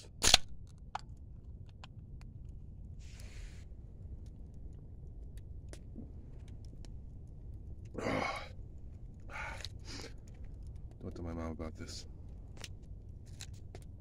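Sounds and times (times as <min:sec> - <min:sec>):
steady low rumble: 0:00.0 - 0:14.0
person breathy exhale: 0:09.3 - 0:10.1.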